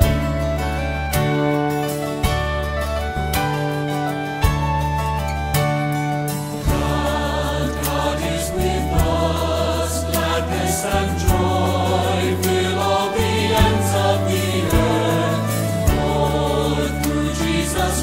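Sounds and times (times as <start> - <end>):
choir singing: 6.6 - 18.0.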